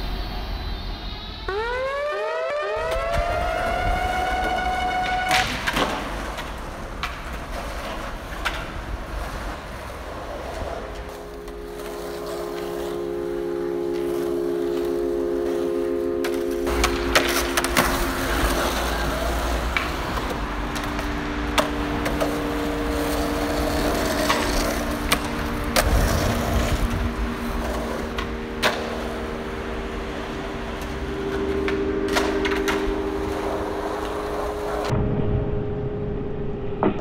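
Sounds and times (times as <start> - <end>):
synth chords background music: 1.2 - 6.0, 10.3 - 37.0
skateboard wheels rolling on concrete: 2.8 - 34.9
skateboard clacking on ledge: 16.2 - 26.8.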